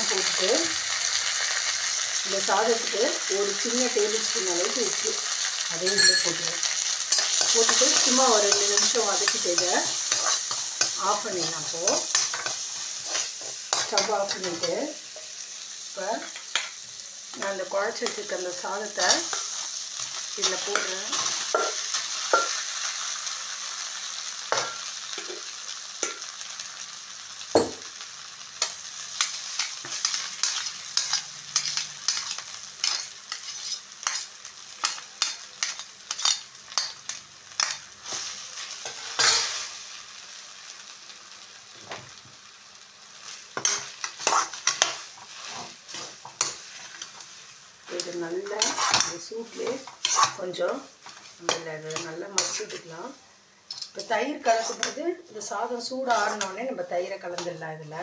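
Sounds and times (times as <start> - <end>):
oil sizzling: 0.0 - 58.0
steel spatula scraping a pan: 5.8 - 15.3, 28.6 - 39.7, 43.6 - 52.9, 53.7 - 55.0, 56.1 - 56.6.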